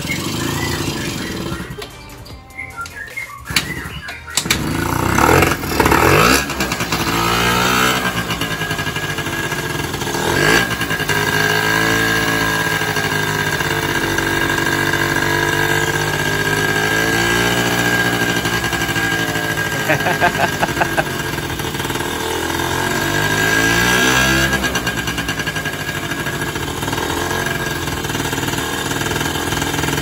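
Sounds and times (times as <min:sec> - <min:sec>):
scooter engine revving and idling: 0:00.0 - 0:02.4, 0:03.3 - 0:30.0.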